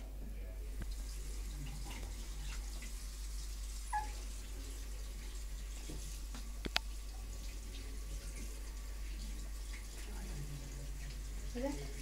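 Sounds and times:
puppy whimpering: 0:03.9 - 0:04.2.

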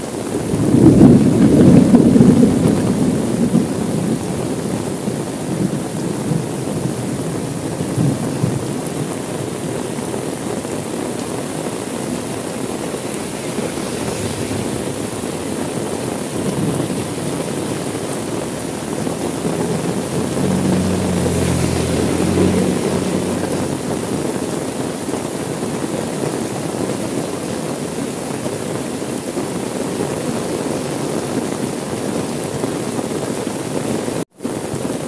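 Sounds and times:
heavy rain on car roof: 0:00.0 - 0:35.0
low rumble: 0:12.0 - 0:17.4.

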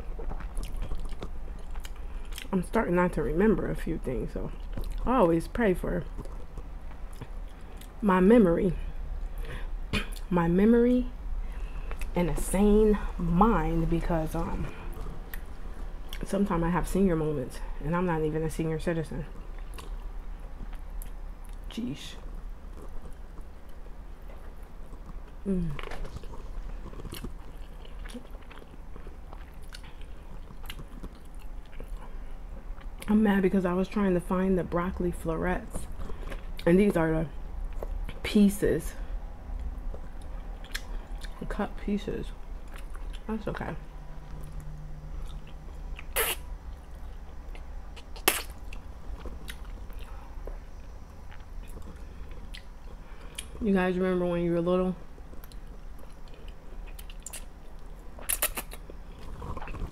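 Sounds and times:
person chewing food: 0:00.0 - 0:02.5, 0:04.5 - 0:05.1, 0:06.0 - 0:08.0, 0:11.4 - 0:12.2, 0:14.5 - 0:16.2, 0:19.3 - 0:33.1, 0:35.8 - 0:36.7, 0:37.5 - 0:38.2, 0:39.5 - 0:41.4, 0:42.6 - 0:43.3, 0:44.2 - 0:53.6, 0:55.1 - 0:59.9
noodle slurp: 0:46.0 - 0:46.4, 0:58.2 - 0:59.9.

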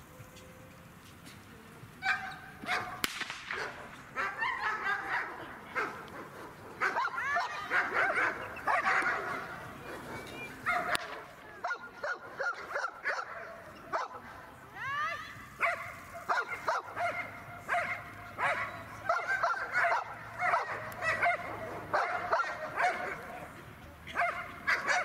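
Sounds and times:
dog barking and yelping: 0:03.6 - 0:06.0, 0:06.8 - 0:09.5, 0:15.6 - 0:23.2.

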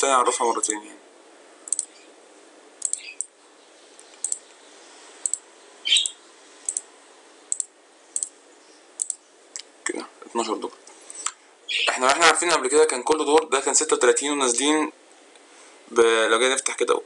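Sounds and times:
faint steady hiss: 0:00.0 - 0:17.0
computer mouse clicking: 0:01.7 - 0:01.9, 0:02.8 - 0:03.3, 0:04.0 - 0:04.6, 0:05.2 - 0:05.4, 0:06.0 - 0:06.9, 0:07.5 - 0:08.3, 0:09.0 - 0:09.7.

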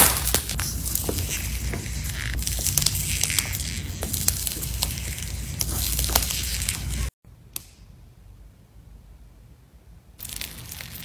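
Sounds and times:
slime crackling and popping: 0:10.2 - 0:11.0.

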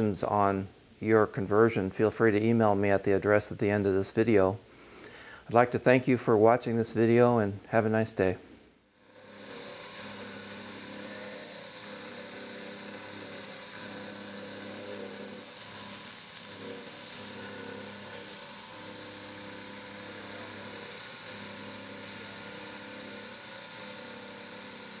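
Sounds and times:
milling machine humming: 0:08.9 - 0:25.0.

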